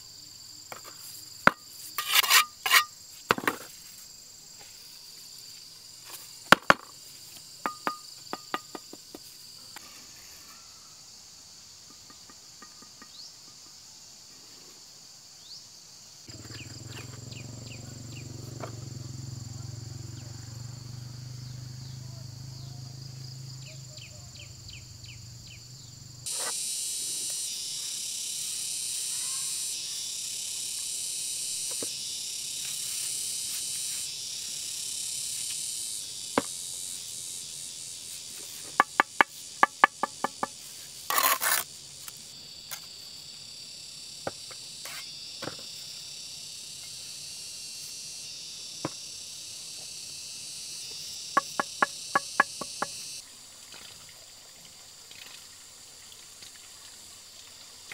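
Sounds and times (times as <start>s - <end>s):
insects chirring: 0.0s - 57.9s
sharp knocks: 51.4s - 53.0s.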